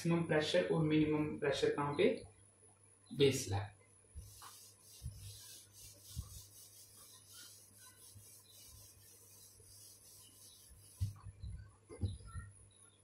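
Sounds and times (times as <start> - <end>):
pen scratching on paper: 4.2 - 11.2.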